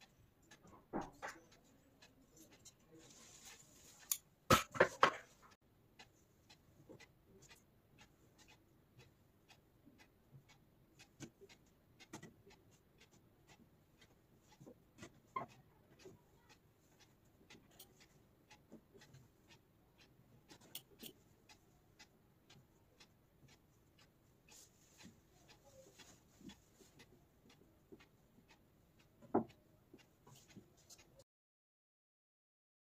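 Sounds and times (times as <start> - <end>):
knock: 4.5 - 5.2.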